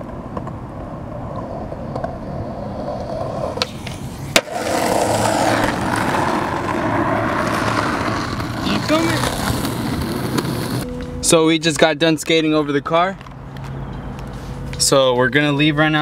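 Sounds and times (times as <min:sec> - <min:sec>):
skateboard wheels rolling on asphalt: 0:00.0 - 0:10.9
skateboard ollie pop: 0:02.8 - 0:08.6
skateboard landing crack: 0:03.0 - 0:08.6.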